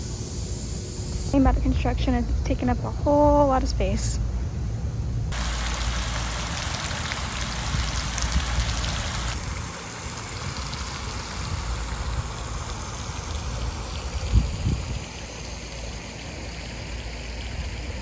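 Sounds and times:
fountain water splashing into pool: 0:05.3 - 0:18.0.

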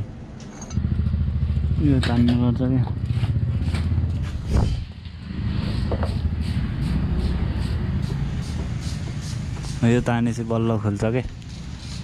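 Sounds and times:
engine running: 0:00.4 - 0:09.8.

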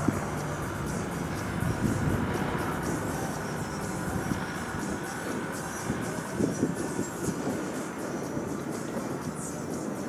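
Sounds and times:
low rumble: 0:00.0 - 0:07.2
propeller plane engine droning: 0:00.0 - 0:10.0.

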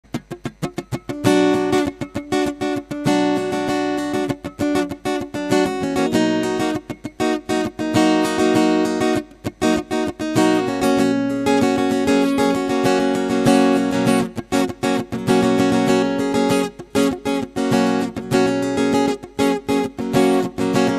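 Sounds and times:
acoustic guitar playing: 0:00.0 - 0:20.9.

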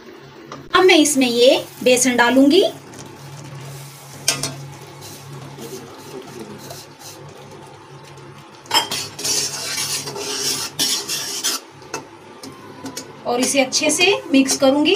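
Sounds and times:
metal spoon scraping a pan: 0:08.7 - 0:11.7.

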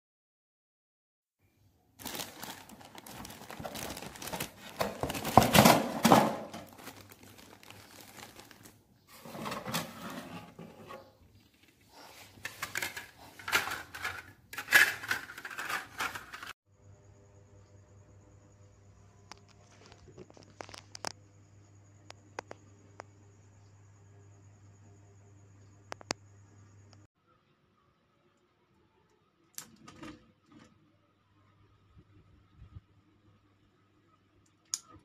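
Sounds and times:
plastic wrapping crinkling: 0:02.0 - 0:08.8.

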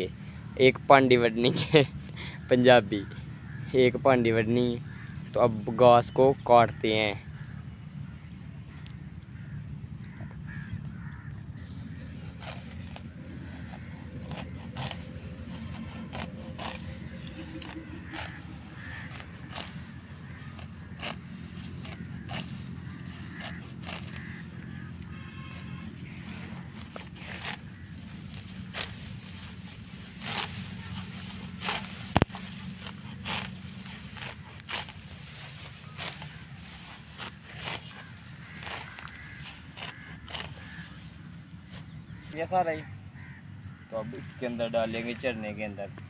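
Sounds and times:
sickle cutting grass: 0:08.7 - 0:42.4.

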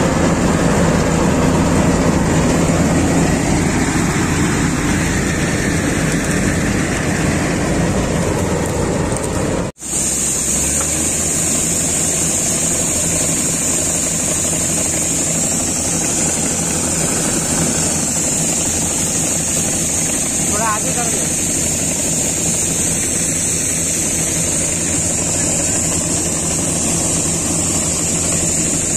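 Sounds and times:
combine harvester engine hum: 0:00.0 - 0:28.9
grain unloading from auger: 0:00.0 - 0:28.9
steady high hiss: 0:09.8 - 0:28.9.

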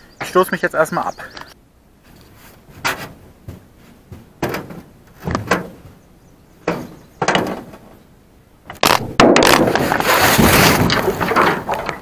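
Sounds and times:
boat hull thudding on concrete: 0:02.8 - 0:06.0.

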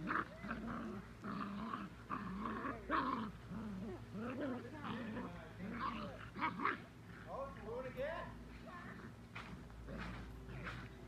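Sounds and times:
puppies yelping: 0:00.0 - 0:06.9
puppies growling: 0:00.0 - 0:07.3.

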